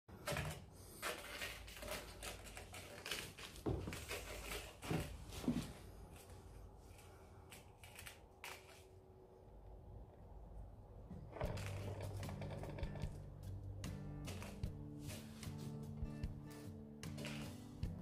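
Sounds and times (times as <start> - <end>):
paws scratching and tapping wood: 0.2 - 5.2.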